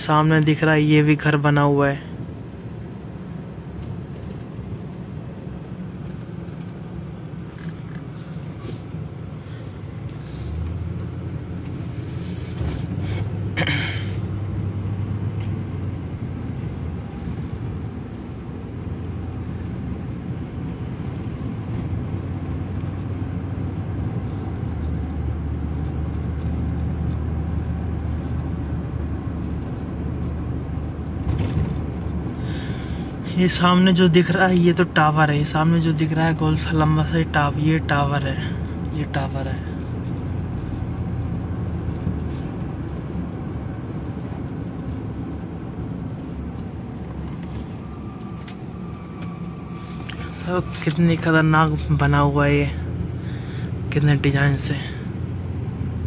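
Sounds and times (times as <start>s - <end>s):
car engine from inside cabin: 0.0s - 56.0s
road noise: 0.0s - 56.0s.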